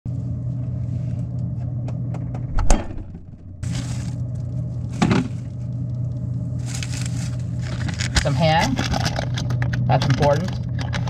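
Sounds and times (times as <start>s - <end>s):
refrigerator humming: 0.1s - 11.0s
sharp clunk: 2.4s - 3.5s
clicks and rattles of items: 7.6s - 11.0s.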